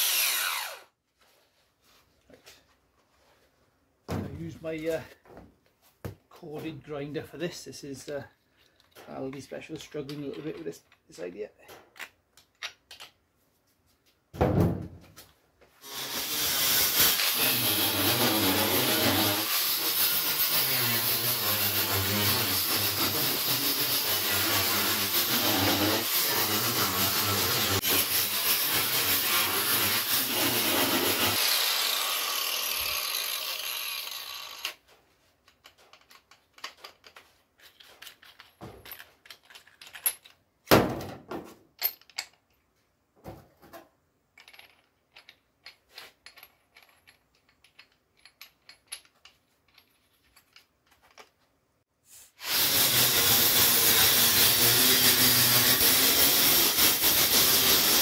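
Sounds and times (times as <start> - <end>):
angle grinder grinding steel: 0.0 - 0.9, 15.8 - 34.8, 52.4 - 58.0
grinder whining down: 0.0 - 0.9, 15.8 - 34.8.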